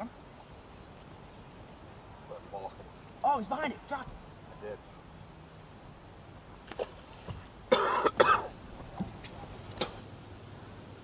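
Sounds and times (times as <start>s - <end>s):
man coughing: 7.7s - 8.5s.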